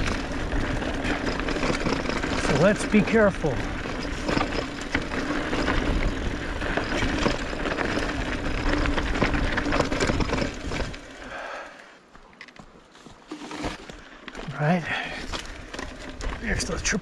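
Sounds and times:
bike tyres crunching on dirt: 0.0s - 17.0s
wind buffeting microphone: 3.5s - 11.0s.

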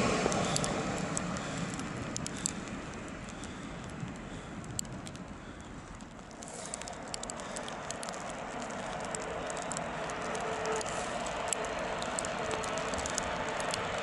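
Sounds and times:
train rushing on tracks: 0.0s - 2.9s, 7.9s - 14.0s
sharp crackling clicks: 0.0s - 14.0s.

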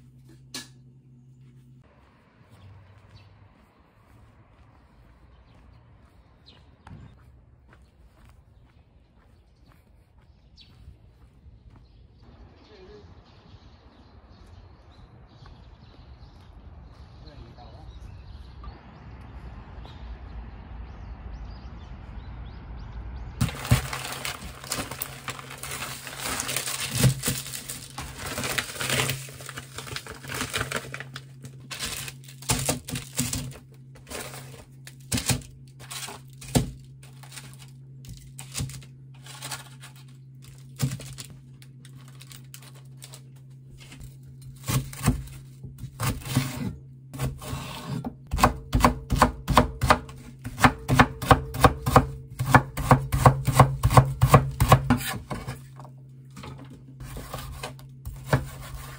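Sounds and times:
knife chopping on cutting board: 44.7s - 55.3s.

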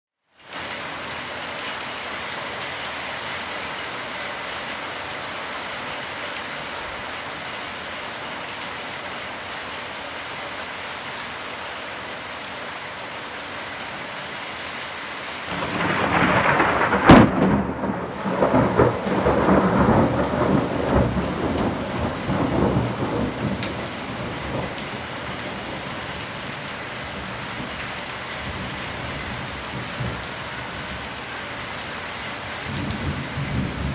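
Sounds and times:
heavy rain falling: 0.3s - 33.9s
thunder rumbling and cracking: 15.5s - 26.5s, 32.7s - 33.9s.

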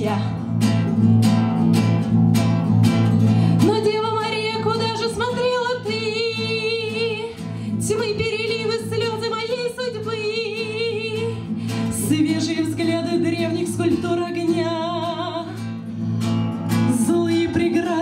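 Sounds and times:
woman singing with vibrato: 0.0s - 0.5s, 3.5s - 15.7s, 16.5s - 18.0s
strummed classical guitar: 0.0s - 18.0s.

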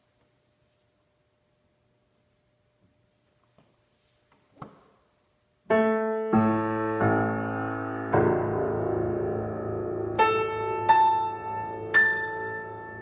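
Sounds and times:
piano chords ringing: 5.6s - 13.0s.

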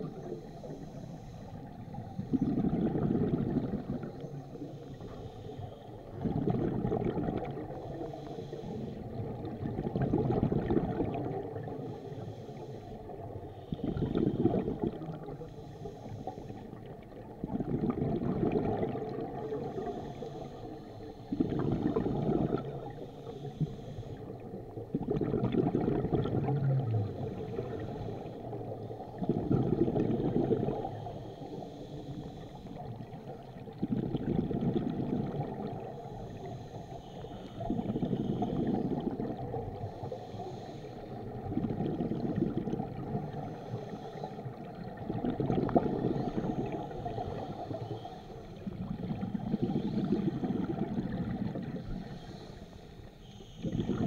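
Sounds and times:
regulator inhale hiss: 0.0s - 2.6s, 3.5s - 6.3s, 7.5s - 9.4s, 11.4s - 17.3s, 19.2s - 24.9s, 26.8s - 29.4s, 30.1s - 33.8s, 35.3s - 41.5s, 43.0s - 45.0s, 45.9s - 54.0s
exhaled bubbles rushing: 1.8s - 4.2s, 6.0s - 8.0s, 9.1s - 11.9s, 13.2s - 15.4s, 16.8s - 20.0s, 21.3s - 23.0s, 24.4s - 31.1s, 32.8s - 36.4s, 37.5s - 39.9s, 41.1s - 43.6s, 44.5s - 47.8s, 48.6s - 52.1s, 53.6s - 54.0s.

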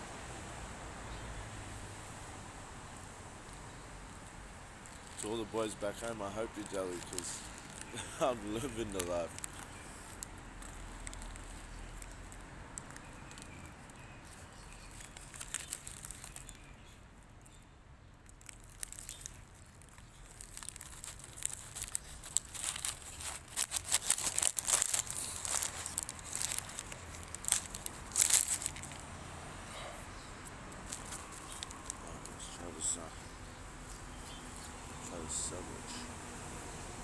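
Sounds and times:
paper bag crinkling: 4.1s - 16.6s, 18.2s - 29.1s, 30.8s - 35.6s.

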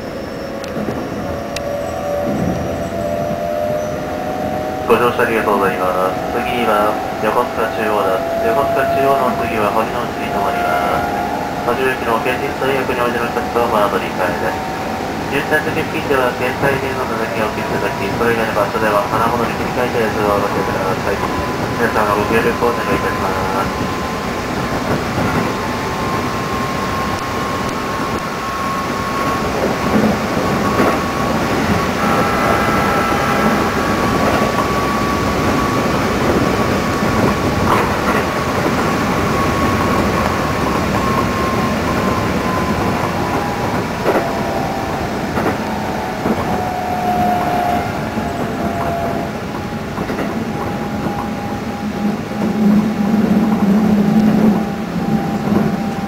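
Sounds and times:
electric train running: 0.0s - 56.0s
rail clicks: 0.0s - 56.0s
thin whine: 0.0s - 56.0s.

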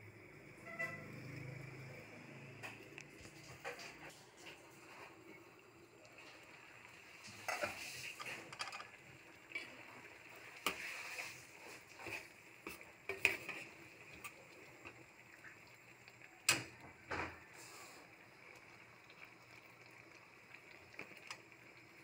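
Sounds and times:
spoon knocking and scraping pan: 7.3s - 8.9s, 12.0s - 13.7s.

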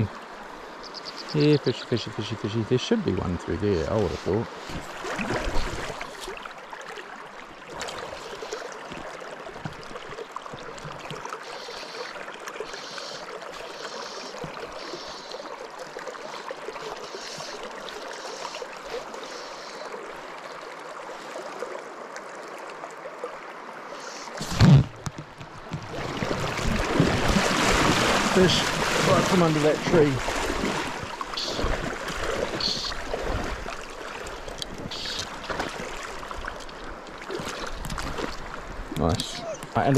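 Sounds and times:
stream water rushing: 0.0s - 39.9s
loud thump: 24.4s - 25.2s.

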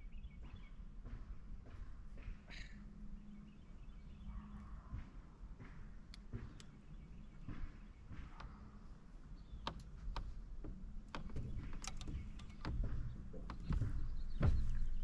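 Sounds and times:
light clicks and knocks: 5.6s - 15.0s.

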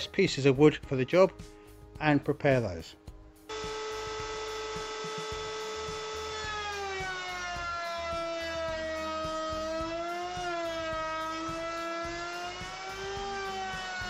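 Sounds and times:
router bit cutting wood: 3.5s - 14.0s
router whining: 3.5s - 14.0s.

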